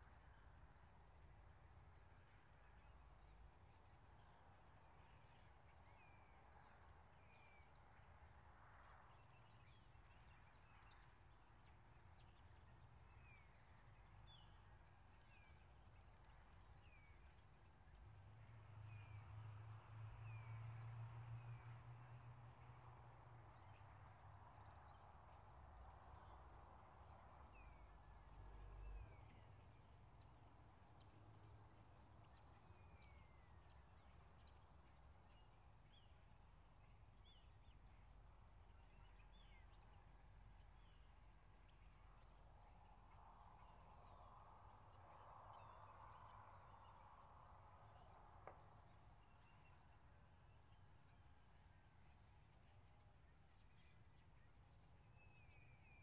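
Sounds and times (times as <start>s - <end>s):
faint bird chirps: 23.6s - 56.0s.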